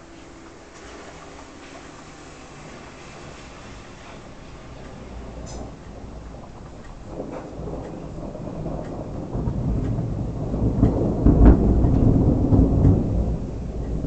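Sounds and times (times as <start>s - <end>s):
thunder rumbling: 0.0s - 14.0s.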